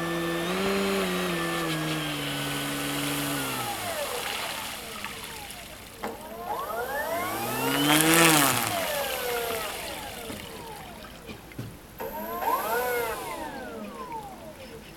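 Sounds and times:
electric motor and propeller whining: 0.0 - 14.9.

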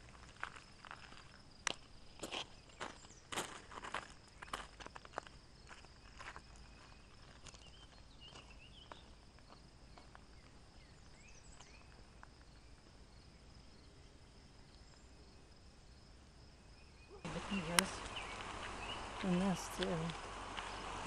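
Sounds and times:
faint footsteps: 0.0 - 13.0, 17.2 - 21.0
faint insect trill: 0.0 - 21.0.

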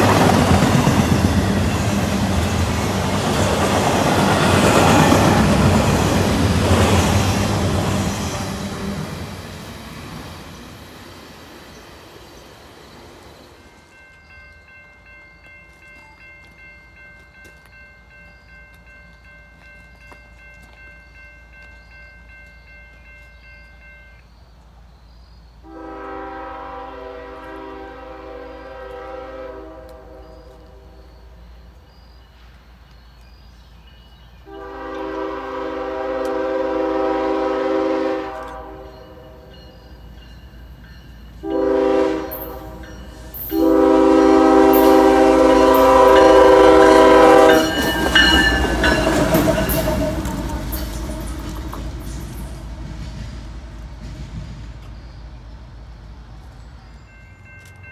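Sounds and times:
train wheels clicking on rails: 0.0 - 23.8, 35.9 - 57.9
locomotive horn blasts: 25.6 - 30.9, 34.5 - 39.5, 41.4 - 51.2
locomotive engine rumble: 40.1 - 57.2.

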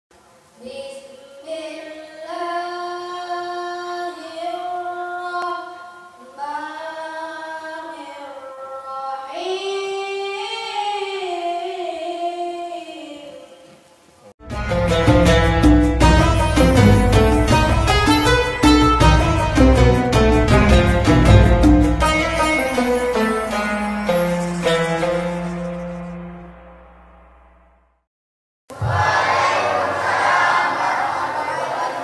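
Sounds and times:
boy reciting melodically: 0.6 - 13.6
loud instrumental music: 14.4 - 26.2.

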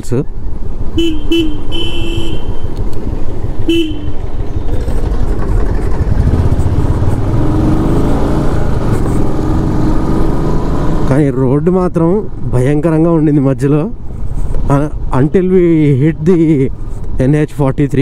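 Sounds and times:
horn beep: 1.0 - 2.7, 3.7 - 4.2
motorcycle engine running: 3.3 - 11.2.

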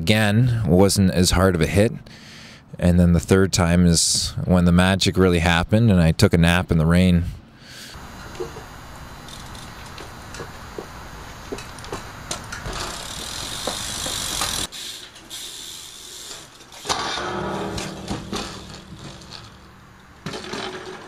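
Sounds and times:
bike tyres rolling on wet concrete: 8.3 - 16.8, 18.2 - 21.0
bike crash impact on rail: 16.4 - 21.0.

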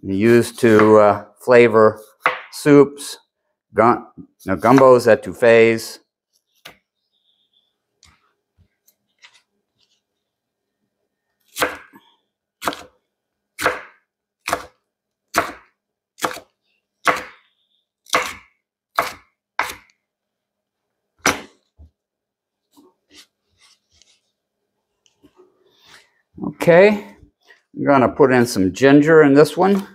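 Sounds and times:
knife chopping on cutting board: 11.6 - 12.0, 12.6 - 12.9, 13.6 - 16.5, 17.1 - 17.4, 18.1 - 19.9, 21.2 - 21.5.

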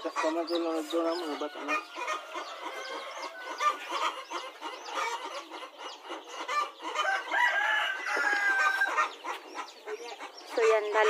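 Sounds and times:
chickens clucking: 0.0 - 11.0
chicks peeping: 0.0 - 11.0
rooster crowing: 1.3 - 3.8, 7.0 - 9.1.

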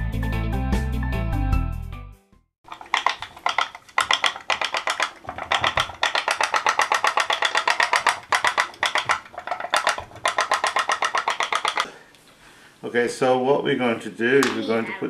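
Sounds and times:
toy steam boat engine popping: 2.6 - 12.0.

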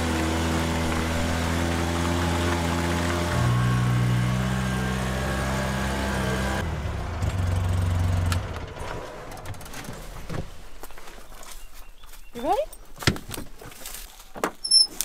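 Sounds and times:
utility vehicle engine running: 0.0 - 11.2.

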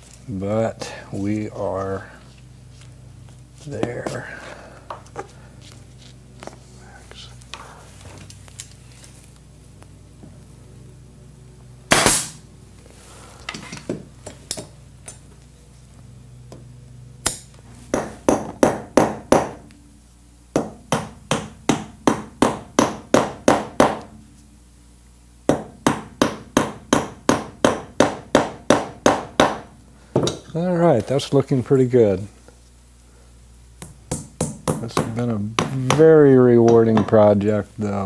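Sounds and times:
stapler snap: 11.9 - 12.4, 17.2 - 17.5.

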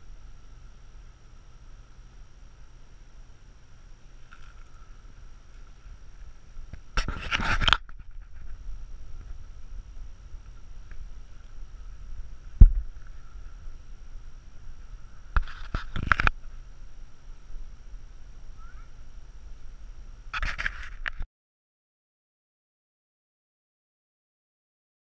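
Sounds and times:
faint low wind rumble: 0.0 - 20.4
scraping and rustling of branches: 4.1 - 17.0, 20.3 - 21.2.

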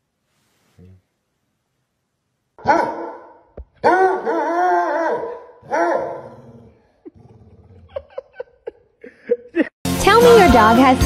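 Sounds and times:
dog baying: 2.6 - 6.8.

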